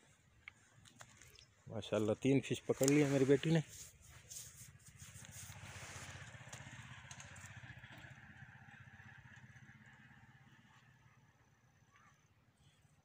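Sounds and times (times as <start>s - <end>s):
clicks and scraping: 2.7s - 7.6s
faint engine running: 2.7s - 13.0s.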